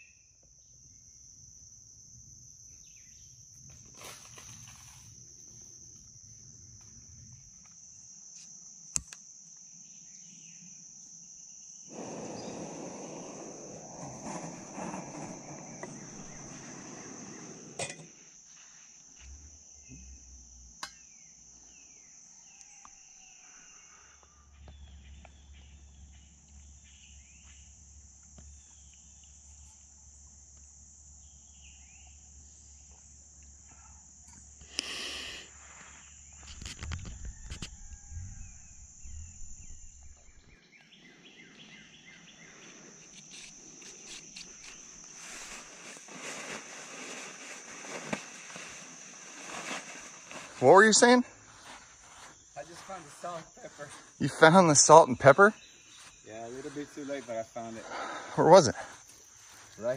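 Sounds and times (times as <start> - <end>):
insects buzzing: 0.0 - 59.9
gas camp stove hissing: 11.9 - 18.5, 34.6 - 40.6.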